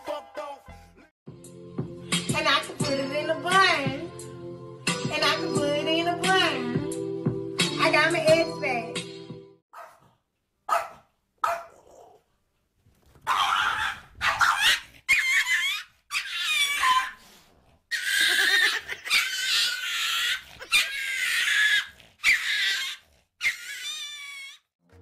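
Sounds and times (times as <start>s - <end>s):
small dog whining: 13.3s - 17.2s, 17.9s - 24.7s.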